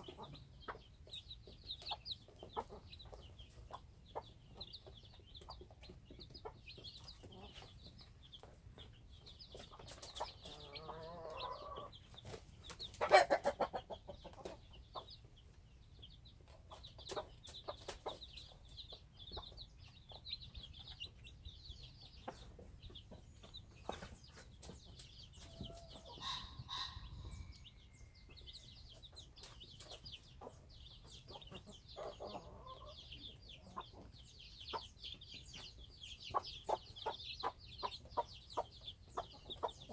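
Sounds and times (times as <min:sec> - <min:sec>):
chicks peeping: 0:00.0 - 0:39.9
hen clucking: 0:00.0 - 0:39.9.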